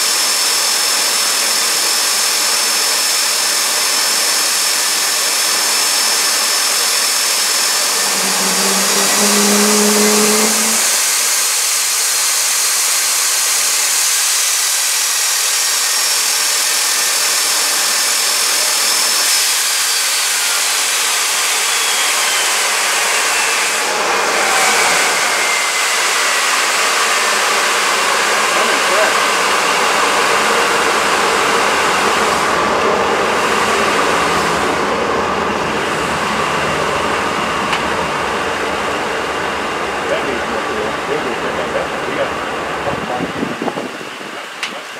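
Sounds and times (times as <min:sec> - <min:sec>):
jet engine roar and whine: 0:00.0 - 0:44.9
short low tone: 0:07.7 - 0:11.3.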